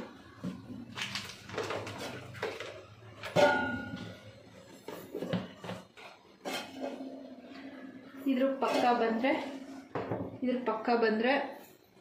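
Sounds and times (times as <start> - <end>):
steel containers clinking: 1.6 - 5.3, 8.1 - 9.8
loud metallic clang: 3.4 - 4.0.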